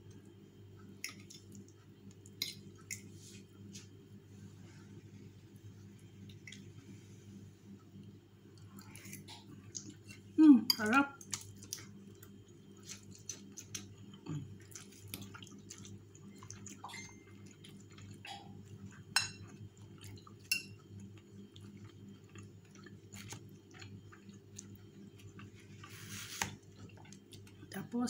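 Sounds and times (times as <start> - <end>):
steady low hum: 0.0 - 28.0
crunchy food chewing: 11.2 - 27.6.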